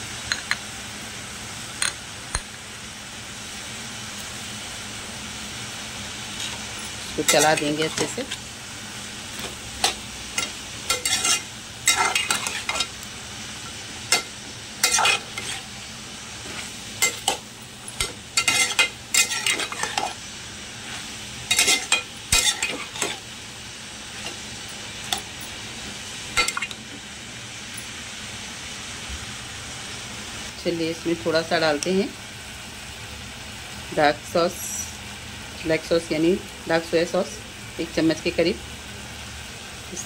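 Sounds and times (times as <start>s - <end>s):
food sizzling: 0.0s - 40.0s
spatula scraping metal pot: 9.8s - 12.9s, 14.2s - 15.7s, 18.0s - 20.2s.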